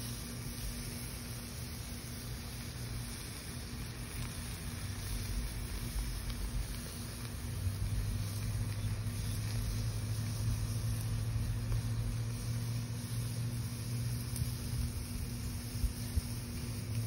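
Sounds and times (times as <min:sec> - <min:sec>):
faint crackles: 0:00.0 - 0:17.0
low mechanical hum: 0:00.0 - 0:17.0
steak sizzling on a grill: 0:00.0 - 0:17.0.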